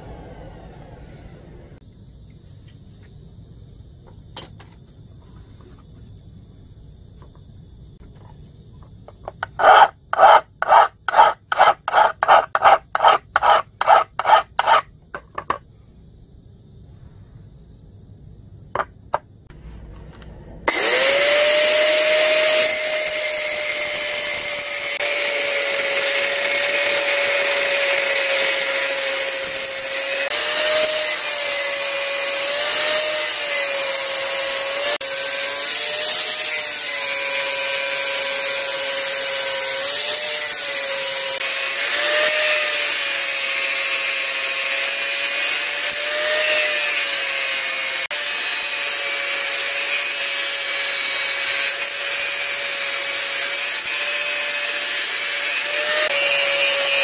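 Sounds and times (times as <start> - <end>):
electric grinder grinding metal: 9.4 - 14.8, 20.7 - 57.0.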